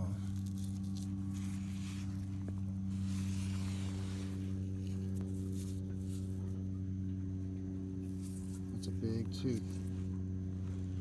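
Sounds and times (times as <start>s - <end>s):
fingers scraping damp dirt: 0.0s - 6.7s, 8.0s - 10.0s
steady low hum: 0.0s - 11.0s.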